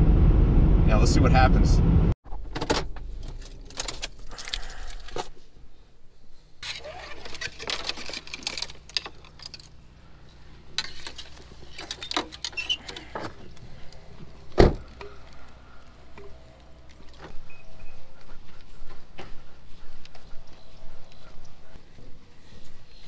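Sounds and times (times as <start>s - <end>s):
fishing gear clicks and knocks: 3.2s - 5.3s, 6.6s - 9.8s, 10.7s - 17.4s.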